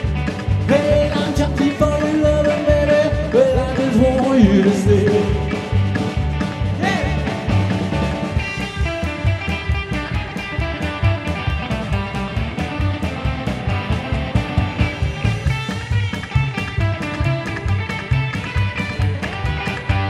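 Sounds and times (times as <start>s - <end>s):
rock and roll band playing: 0.0s - 20.0s
person singing: 0.6s - 5.7s, 6.8s - 7.3s.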